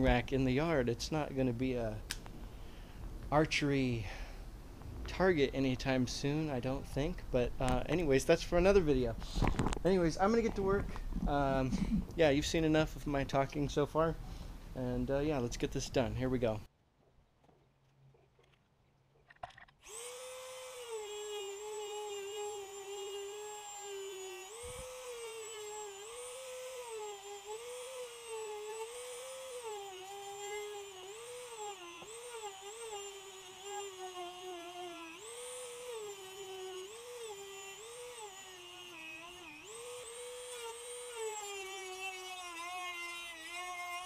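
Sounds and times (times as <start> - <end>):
rotary tool grinding plastic: 19.4 - 44.0.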